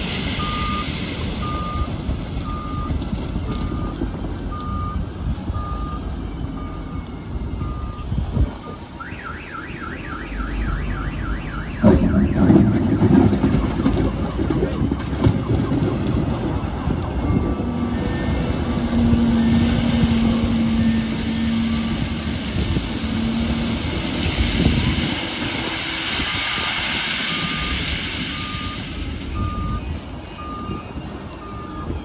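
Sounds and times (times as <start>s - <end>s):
diesel engine working under load: 0.0s - 32.0s
warbling alarm: 8.6s - 22.2s.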